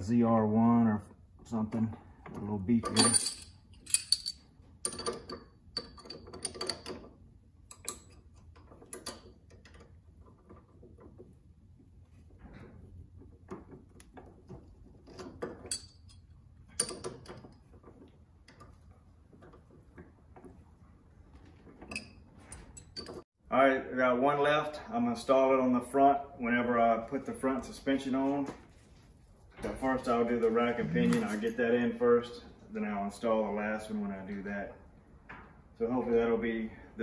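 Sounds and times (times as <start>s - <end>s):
sharp metal clinks: 3.0s - 5.0s.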